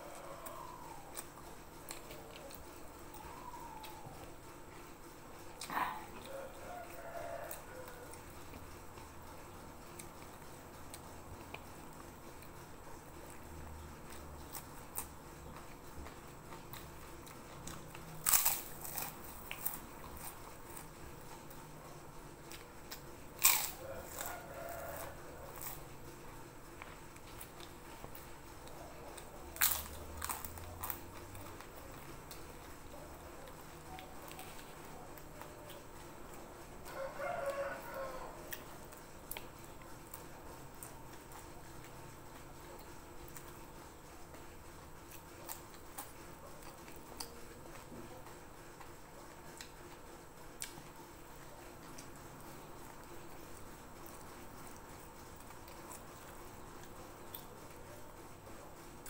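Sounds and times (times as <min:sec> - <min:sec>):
crackers crunching: 0:00.0 - 0:58.0
quiet chewing: 0:00.0 - 0:59.0
eating clicks and smacks: 0:38.5 - 0:43.6, 0:44.3 - 0:57.8.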